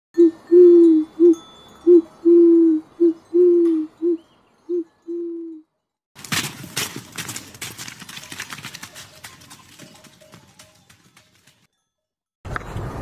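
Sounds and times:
wood pigeon cooing: 0.2s - 5.6s.

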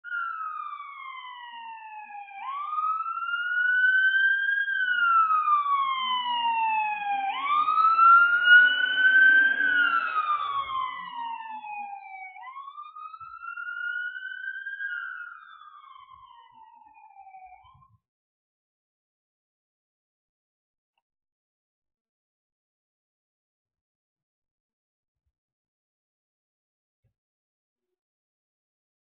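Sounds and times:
ambulance wail siren: 0.0s - 18.0s
engine and tyre noise: 7.1s - 11.7s.

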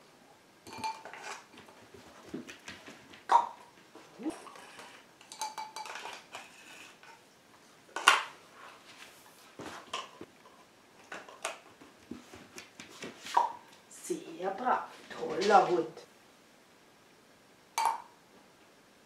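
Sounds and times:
plastic cups clattering on carpet: 0.7s - 7.1s.

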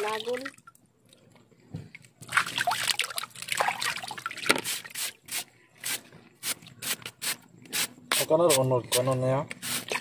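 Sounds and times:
water splashing and dripping: 0.0s - 5.3s, 9.7s - 10.0s.

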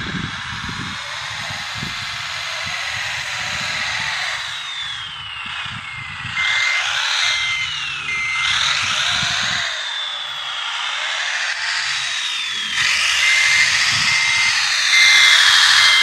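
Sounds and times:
electric motors whining: 0.0s - 16.0s
short beeps: 5.5s - 9.6s, 12.6s - 16.0s.

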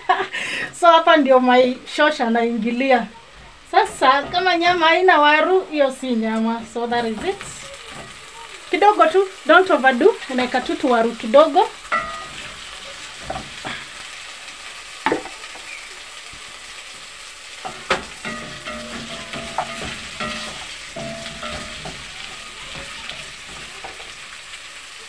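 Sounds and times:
frying sizzle: 0.0s - 25.0s
spoon knocking against pot: 11.9s - 13.9s, 17.6s - 24.1s.

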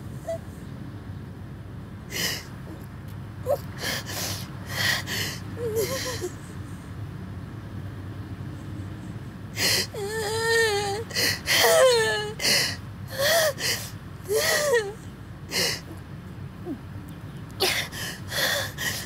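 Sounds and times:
woman sobbing: 3.5s - 6.4s, 9.6s - 16.0s, 17.6s - 19.0s
woman whimpering: 9.6s - 16.0s.

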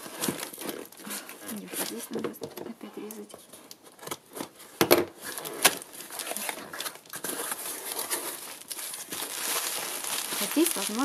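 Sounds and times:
packaging crinkling and rustling: 0.0s - 11.0s.

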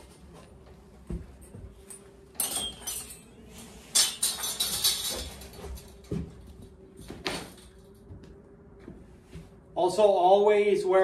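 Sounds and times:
saw blade rattling and clinking: 3.9s - 5.9s.

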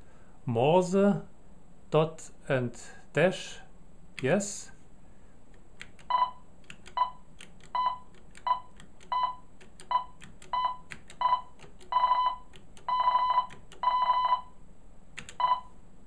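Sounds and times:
keypad keys clicking: 5.8s - 13.9s, 15.2s - 15.6s.

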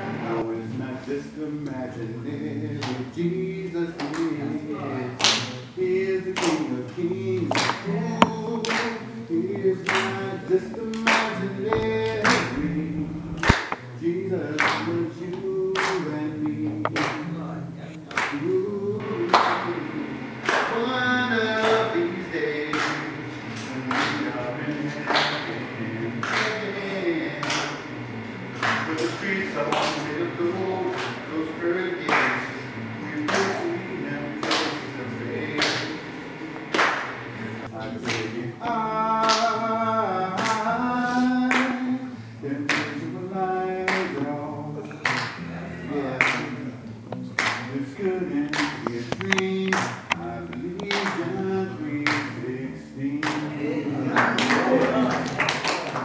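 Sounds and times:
group singing gospel song: 0.0s - 56.0s
hand claps: 2.8s - 3.0s, 4.0s - 4.5s, 5.2s - 5.6s, 6.4s - 9.0s, 9.6s - 19.8s, 20.4s - 25.6s, 26.2s - 27.9s, 28.6s - 30.2s, 30.9s - 31.3s, 32.0s - 33.8s, 34.4s - 36.0s, 36.6s - 38.5s, 39.2s - 39.6s, 40.3s - 41.9s, 42.7s - 43.0s, 43.9s - 44.4s, 45.0s - 45.4s, 46.2s - 52.4s, 53.2s - 56.0s.

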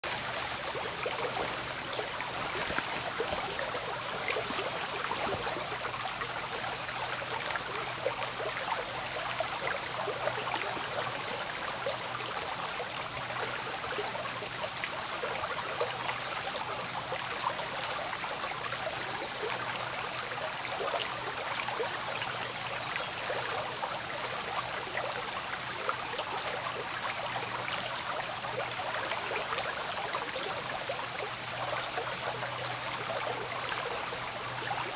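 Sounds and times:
brook babbling over rocks: 0.0s - 34.9s.

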